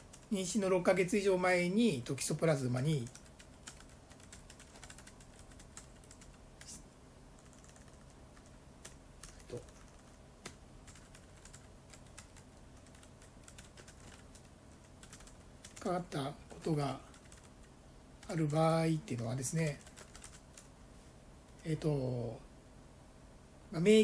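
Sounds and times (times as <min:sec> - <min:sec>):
typing clicks on tablet: 0:03.0 - 0:06.4, 0:19.8 - 0:20.7.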